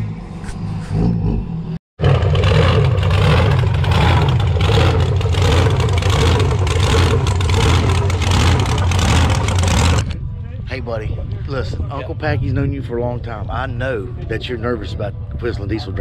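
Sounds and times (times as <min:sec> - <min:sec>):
vehicle engine running: 0:00.0 - 0:12.5.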